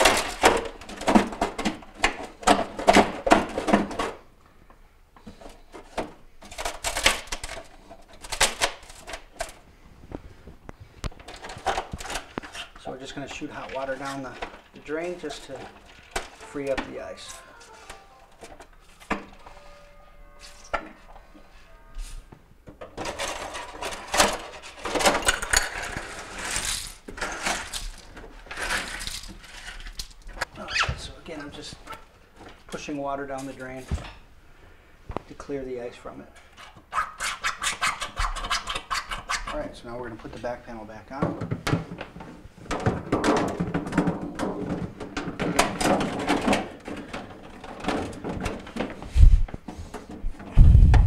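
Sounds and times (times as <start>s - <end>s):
plastic scraping and clicking: 10.6s - 16.9s.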